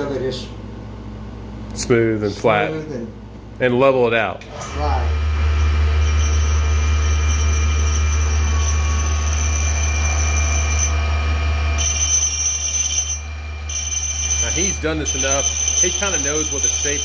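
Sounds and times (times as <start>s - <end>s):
grinding wheel motor hum: 4.4s - 17.0s.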